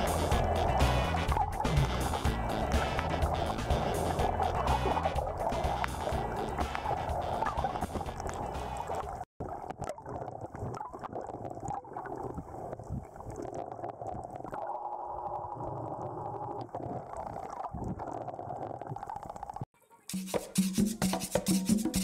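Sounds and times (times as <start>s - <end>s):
low underwater rumble: 0.0s - 13.3s
underwater gurgling and bubbling: 0.0s - 19.7s.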